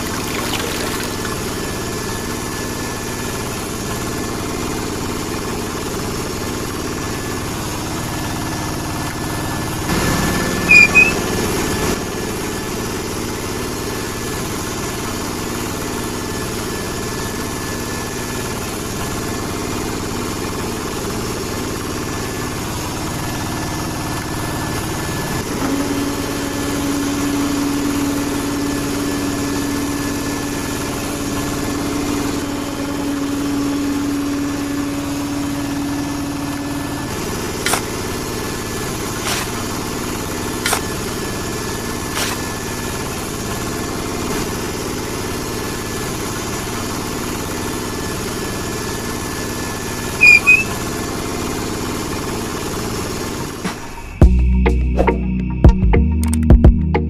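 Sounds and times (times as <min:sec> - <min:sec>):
steady tone: 0:10.7 - 0:11.2, 0:50.2 - 0:50.7.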